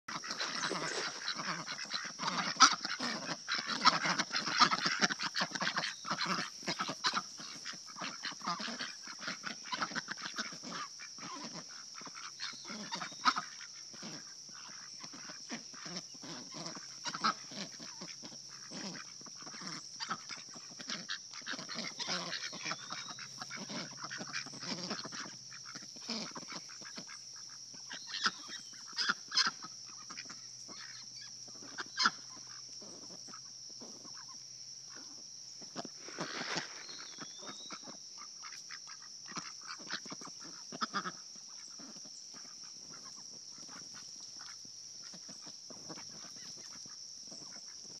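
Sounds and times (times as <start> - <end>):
duck bills dabbling: 0.1 - 18.1
ducks quacking: 0.1 - 35.2, 35.8 - 47.9
steady high-pitched hiss: 0.1 - 48.0.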